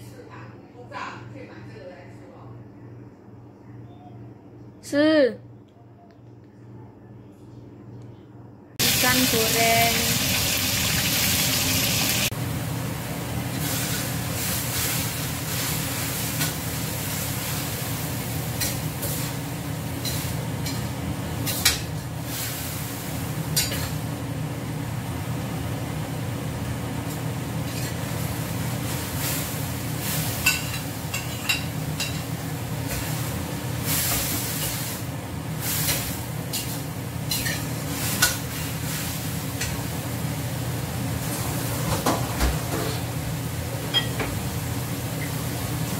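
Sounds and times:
oil sizzling under frying fish: 8.8s - 24.4s, 26.4s - 42.2s.

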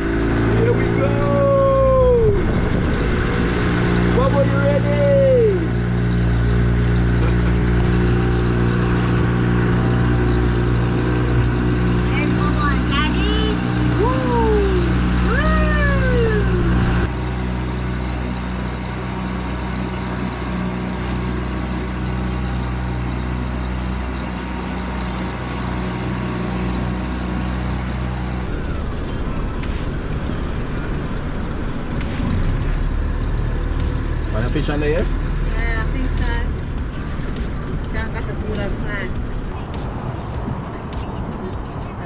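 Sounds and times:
boat motor humming: 0.0s - 42.0s
rising and falling cries: 0.6s - 2.6s, 13.5s - 17.1s.

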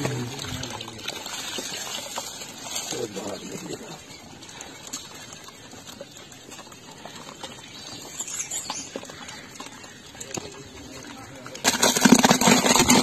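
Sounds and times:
juice trickling through cloth: 0.0s - 13.0s.

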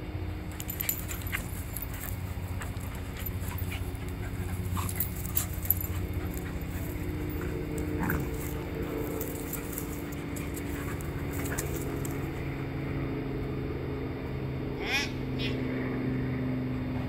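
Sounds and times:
dog noises: 0.0s - 12.8s
low background noise: 0.0s - 14.8s
dogs scuffling: 0.4s - 12.6s.

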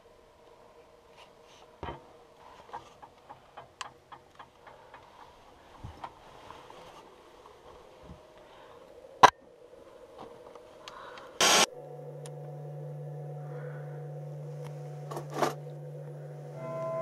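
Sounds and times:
low droning music bed: 7.6s - 17.0s.

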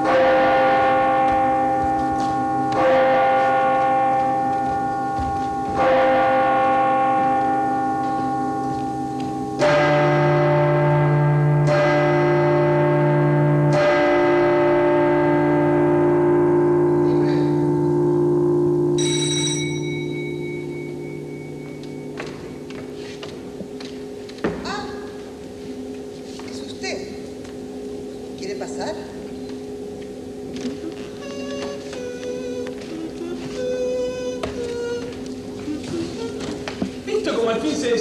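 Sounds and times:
bell-like chimes: 18.9s - 23.1s.

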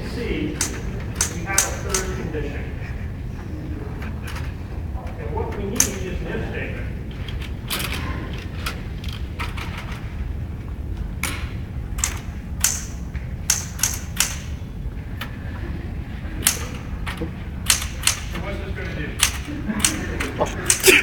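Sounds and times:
steady low hum: 0.0s - 21.0s
typewriter key clacks: 0.6s - 2.1s, 12.0s - 14.6s, 16.4s - 18.4s, 19.2s - 20.9s.

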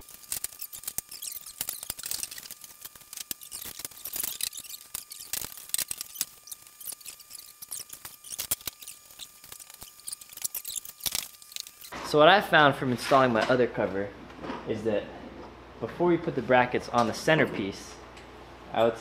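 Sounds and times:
plastic panels clicking and squeaking: 0.0s - 12.0s.

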